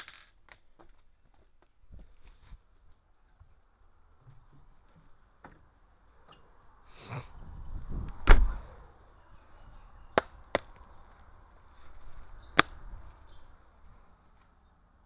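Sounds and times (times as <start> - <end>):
loud deep thump: 8.2 - 8.7.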